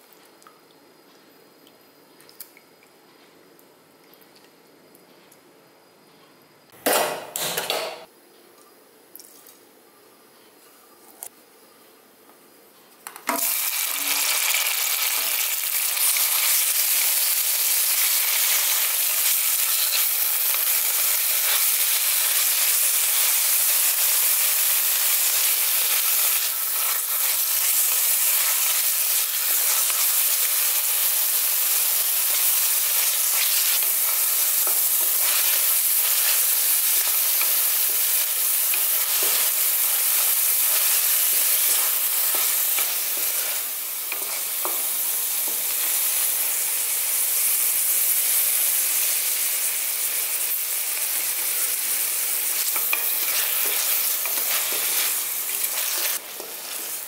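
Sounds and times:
onion sizzling in hot fat: 13.2s - 57.0s
spatula stirring and scraping pan: 25.6s - 31.2s, 32.0s - 46.1s, 52.6s - 57.0s.

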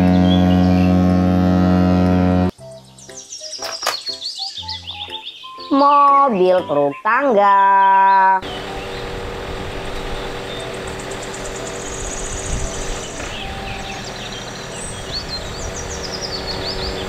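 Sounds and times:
birds chirping: 0.0s - 1.3s, 2.6s - 17.0s
engine running steadily: 8.4s - 17.0s.

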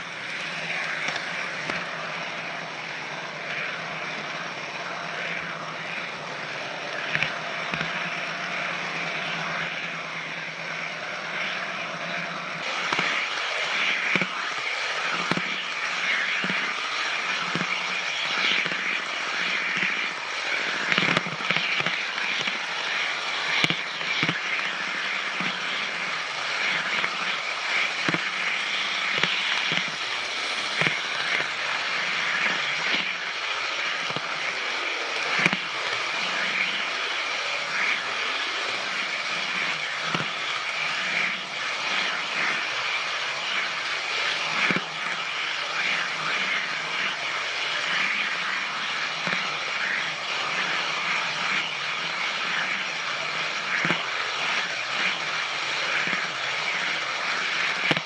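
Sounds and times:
model train motor whirring: 0.0s - 58.0s.

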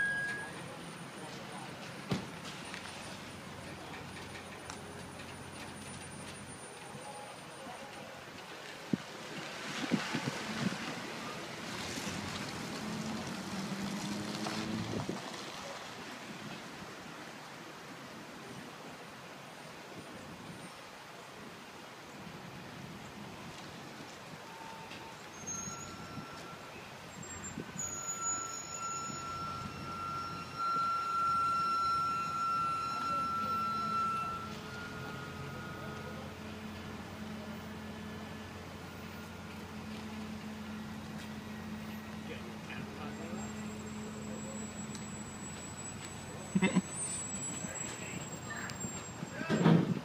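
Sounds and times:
high metallic squeal: 0.0s - 1.3s, 24.5s - 39.7s, 43.0s - 49.8s
train car rolling past: 0.0s - 18.0s, 22.4s - 50.0s.

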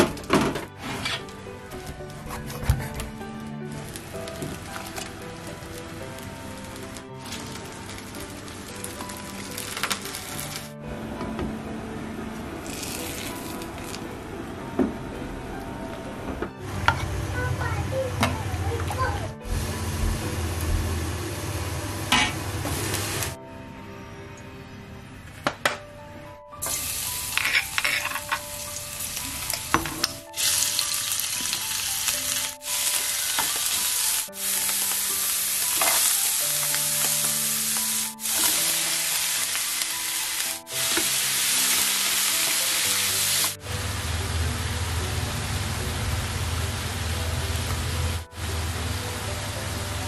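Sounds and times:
food sizzling in a frying pan: 3.8s - 10.7s, 12.6s - 14.0s, 21.6s - 23.4s, 26.6s - 45.6s.

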